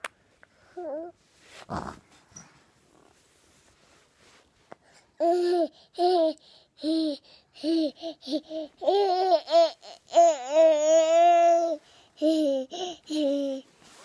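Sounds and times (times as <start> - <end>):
baby babbling: 5.2 - 13.6.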